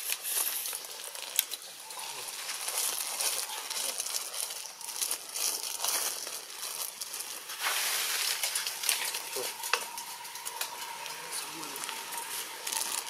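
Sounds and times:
leaves and twigs rustling: 0:00.0 - 0:13.0
steady high hiss: 0:05.8 - 0:13.0.

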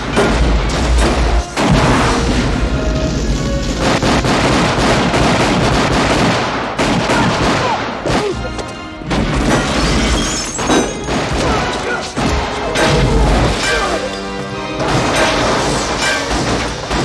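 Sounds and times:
explosion booms and crashes: 0:00.0 - 0:08.1
loud action score music: 0:00.0 - 0:17.0.

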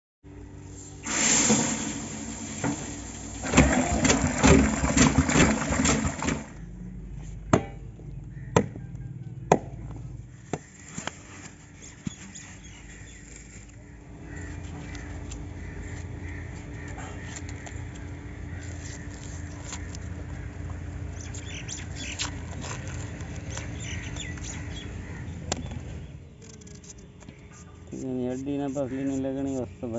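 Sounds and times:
rice pouring into metal pot: 0:01.0 - 0:06.4.

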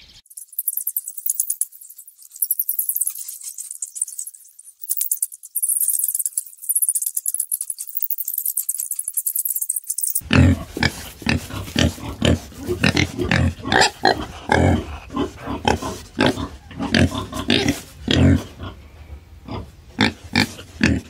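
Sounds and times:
pigs grunting: 0:10.2 - 0:21.0.

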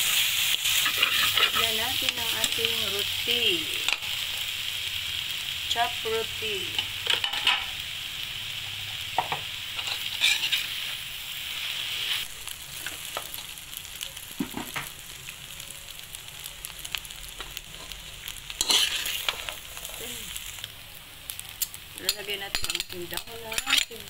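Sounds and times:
metal spatula scraping a pan: 0:00.0 - 0:01.8, 0:09.7 - 0:10.9, 0:17.6 - 0:20.0, 0:22.1 - 0:24.0
food sizzling in a wok: 0:00.0 - 0:24.0.

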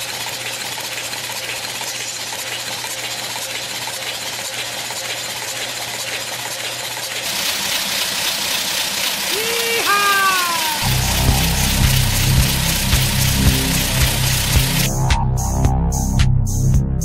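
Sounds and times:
engine valvetrain clattering: 0:00.0 - 0:14.9
high tone sliding downward: 0:09.7 - 0:16.2.

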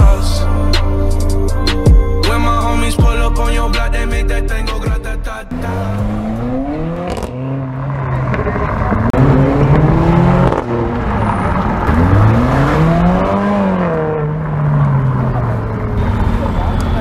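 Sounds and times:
car engine revving: 0:00.0 - 0:17.0
exhaust pops and crackles: 0:08.2 - 0:09.2.

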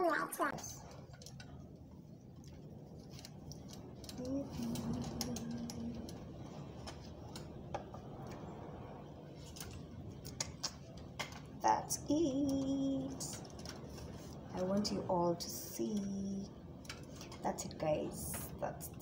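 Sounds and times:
person humming: 0:04.2 - 0:06.1.

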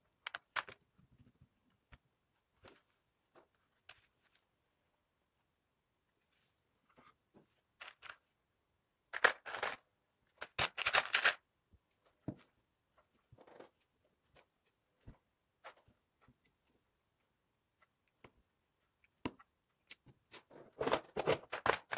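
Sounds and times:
plastic bricks clicking and rattling: 0:10.4 - 0:11.4.

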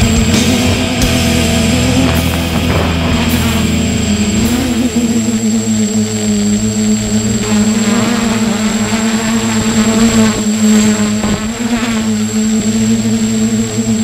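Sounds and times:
drone motors humming: 0:00.0 - 0:14.0
thin high whine: 0:00.0 - 0:14.0.

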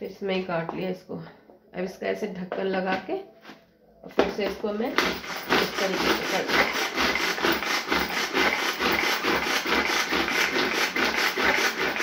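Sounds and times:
string food chopper whirring: 0:04.9 - 0:12.0.

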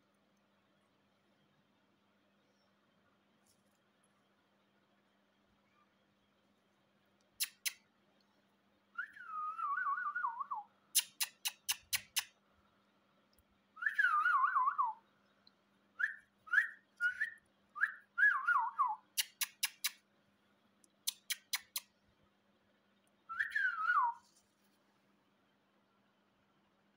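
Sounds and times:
sharp clicks: 0:07.3 - 0:07.8, 0:11.0 - 0:12.4, 0:19.2 - 0:20.0, 0:20.8 - 0:21.9
parakeet chirps: 0:07.4 - 0:07.8, 0:11.0 - 0:12.3, 0:19.1 - 0:20.0, 0:21.0 - 0:21.9.

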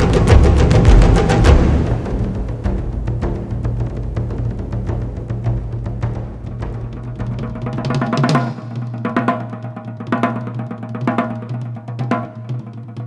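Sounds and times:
quick lighter drum strikes: 0:00.0 - 0:10.4
heavy drum beat: 0:00.0 - 0:13.0.

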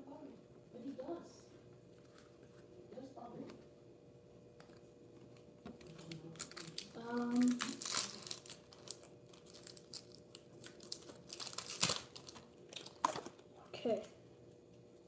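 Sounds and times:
foil wrapper crinkling: 0:05.7 - 0:13.4.

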